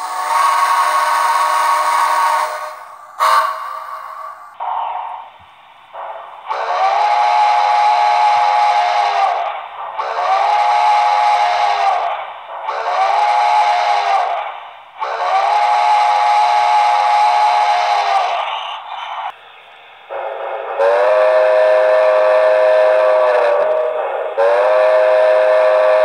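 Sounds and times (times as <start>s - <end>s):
steam whistle through small speaker: 0.0s - 4.6s, 6.5s - 9.4s, 10.0s - 12.1s, 12.7s - 14.4s, 15.0s - 18.4s, 20.2s - 26.0s.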